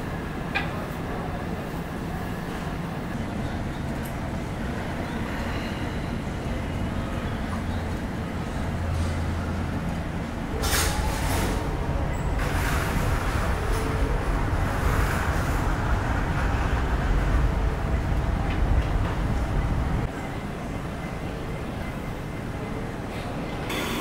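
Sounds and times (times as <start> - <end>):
terminal background rumble: 0.0 - 24.0.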